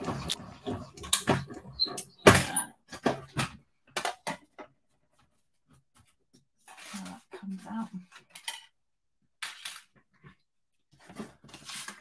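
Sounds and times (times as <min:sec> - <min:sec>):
objects clicking and knocking on desk: 0:00.0 - 0:01.6.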